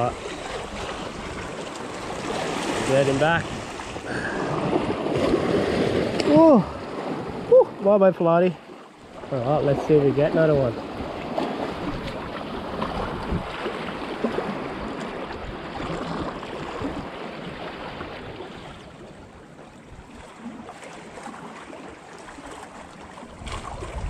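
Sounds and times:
wind buffeting microphone: 0.0s - 7.9s, 9.1s - 19.0s, 23.3s - 24.0s
water lapping against rocks: 0.0s - 24.0s.

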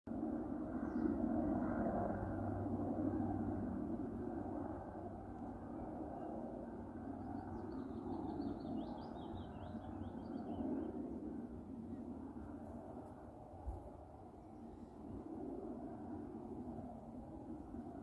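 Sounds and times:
low outdoor background noise: 0.1s - 18.0s
songbird chirping: 7.2s - 10.8s.

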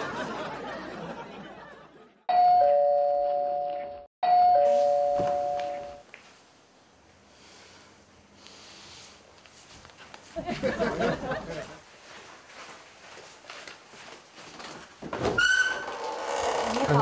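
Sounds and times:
two-note doorbell chime: 2.3s - 6.0s.

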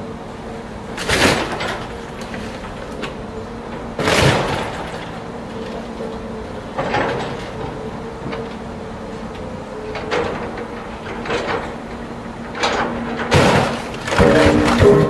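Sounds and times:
metallic clanks and scrapes: 12.6s - 15.0s.

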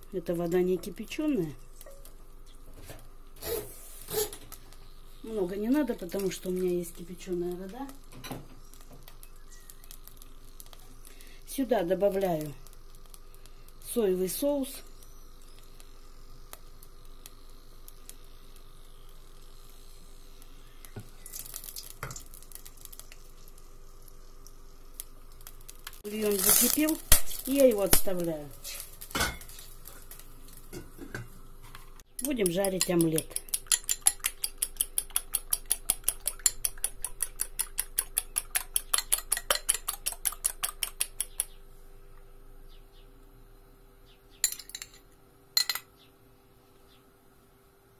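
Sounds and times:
light crackling: 0.1s - 42.3s
spatula stirring in a pot: 28.6s - 41.5s
fork beating eggs in glass bowl: 32.2s - 41.6s.

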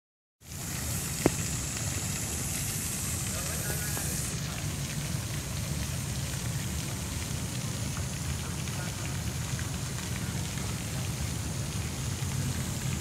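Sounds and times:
fountain water splashing: 0.4s - 13.0s.

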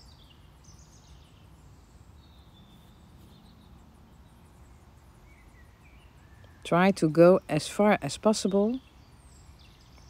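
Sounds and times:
faint high chirp: 0.0s - 6.7s.

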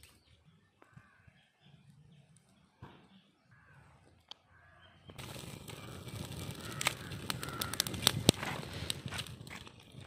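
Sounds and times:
fire crackling: 5.1s - 10.0s
sharp snaps of burning twigs: 5.1s - 10.0s
rustling of dry twigs: 5.2s - 10.0s.

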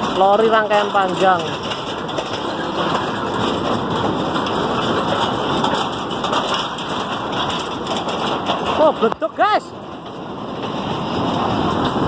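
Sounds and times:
wind on microphone: 1.5s - 8.8s, 9.7s - 12.0s.

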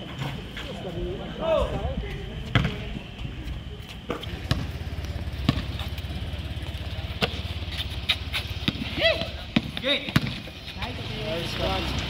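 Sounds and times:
motorcycle engine idling: 4.2s - 9.7s.

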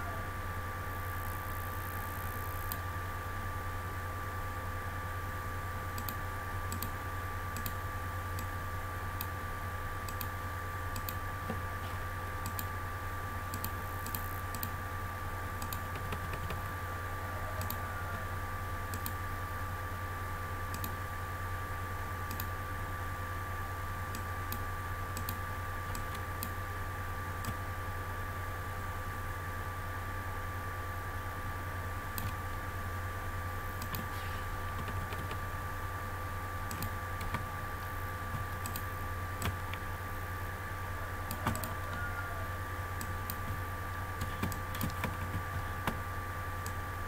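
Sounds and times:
electrical hum with whine: 0.0s - 47.0s
keyboard and mouse clicking: 6.0s - 7.0s, 7.6s - 7.8s, 10.1s - 10.3s, 10.9s - 11.6s, 12.4s - 12.7s, 13.5s - 14.7s, 15.6s - 16.7s, 17.6s - 17.8s, 18.9s - 19.2s, 20.7s - 21.0s, 22.3s - 22.5s, 25.2s - 26.5s, 32.2s - 32.4s, 33.8s - 34.1s, 34.7s - 35.4s, 36.7s - 37.5s, 38.3s - 39.8s, 41.3s - 41.7s, 43.0s - 43.6s, 44.2s - 46.0s.

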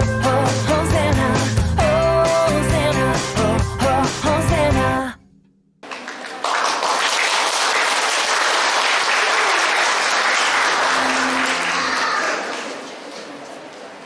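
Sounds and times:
audience applause: 5.8s - 13.6s.

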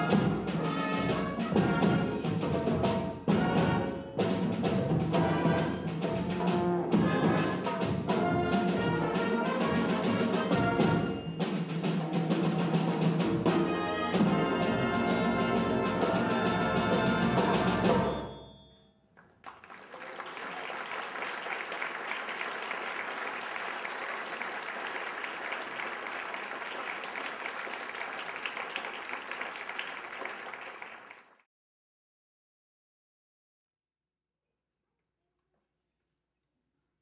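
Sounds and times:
marching band brass and drums: 0.0s - 18.3s
audience applauding: 19.2s - 31.4s.

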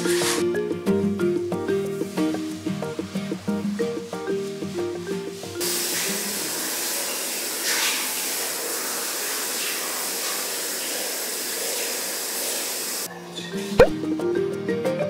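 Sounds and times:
shower head spraying water: 0.0s - 0.4s, 5.6s - 13.1s.

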